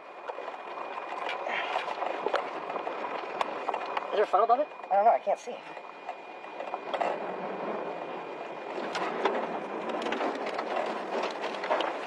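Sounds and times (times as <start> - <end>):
sharp crackles and taps: 2.0 - 4.1.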